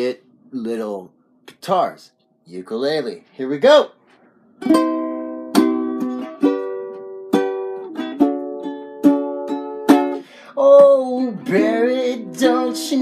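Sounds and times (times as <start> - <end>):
ukulele strumming chords: 4.6 - 13.0.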